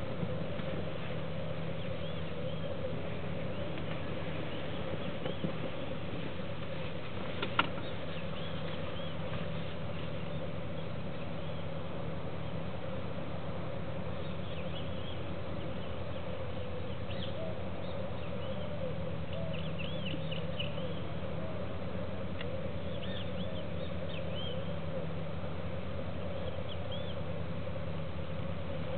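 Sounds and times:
steady low drone: 0.0s - 28.9s
small birds chirping: 7.6s - 11.8s, 22.8s - 24.8s.

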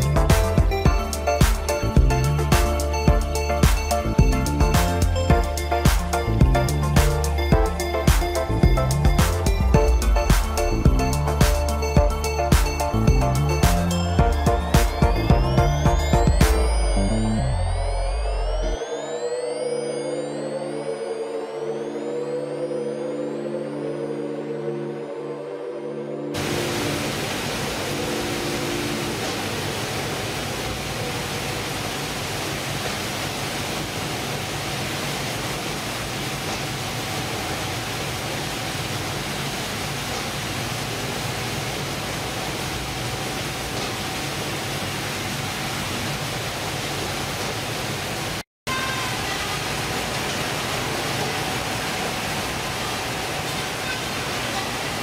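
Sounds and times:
fish-processing machinery running: 26.4s - 55.0s.

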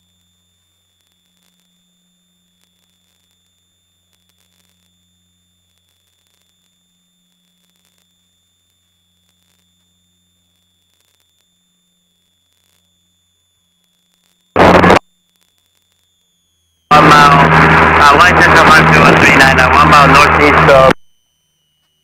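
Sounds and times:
high electronic whine: 0.0s - 22.0s
airplane cabin noise: 14.6s - 15.0s, 16.9s - 21.0s.

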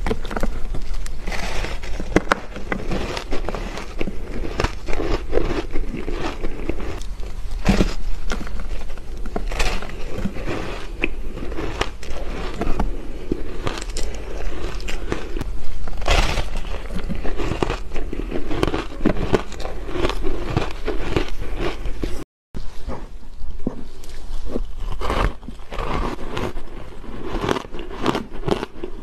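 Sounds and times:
ice crunching while chewed: 0.0s - 22.2s, 23.8s - 29.0s.

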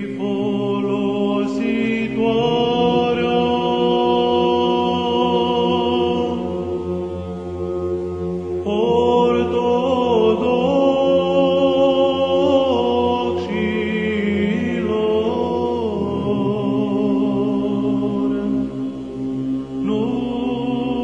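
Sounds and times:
low sung drone: 0.0s - 21.0s.

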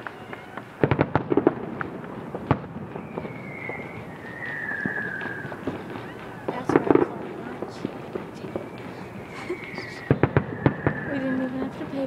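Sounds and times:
fireworks bangs and crackles: 0.0s - 12.0s
high falling whistles: 2.9s - 6.5s, 8.5s - 11.6s.

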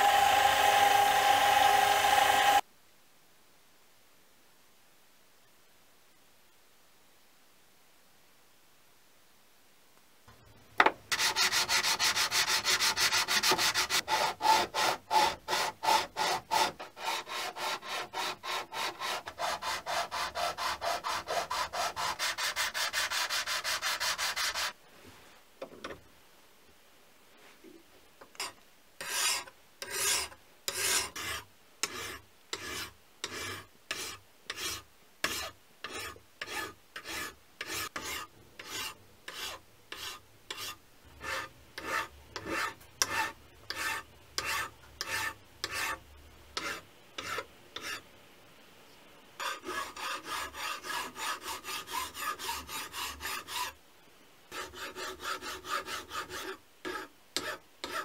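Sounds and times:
hand file rasping on steel: 11.1s - 24.8s, 28.4s - 46.0s, 46.6s - 48.0s, 49.4s - 53.8s, 54.5s - 58.0s.

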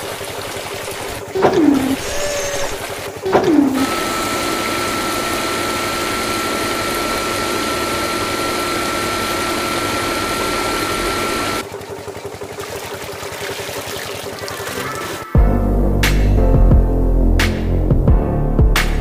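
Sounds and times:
water spray splashing: 0.0s - 11.7s, 12.4s - 15.3s
electric pump motor whining: 0.8s - 13.2s.

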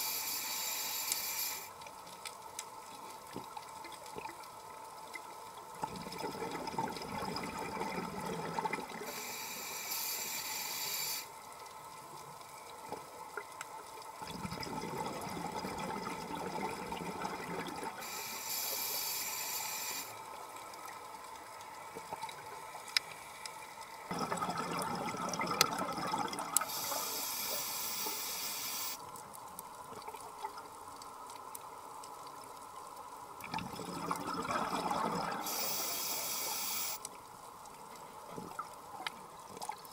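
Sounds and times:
regulator hissing inhale: 0.0s - 1.7s, 9.0s - 11.3s, 18.0s - 20.2s, 26.6s - 29.0s, 35.4s - 37.0s
exhaled bubbles gurgling underwater: 5.8s - 9.3s, 14.2s - 18.2s, 24.1s - 27.2s, 33.4s - 35.8s.

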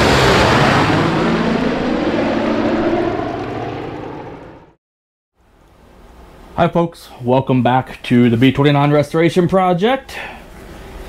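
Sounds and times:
propeller aircraft engines droning: 0.0s - 4.8s.

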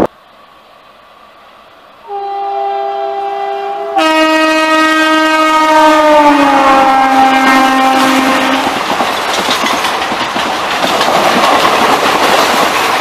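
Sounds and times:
rush of passing train: 0.0s - 13.0s
train horn: 2.0s - 8.8s.

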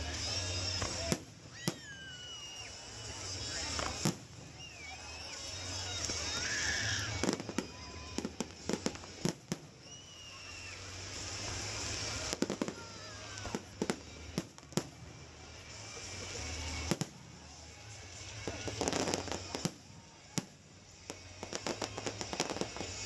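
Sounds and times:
fireworks hissing: 0.0s - 23.0s.

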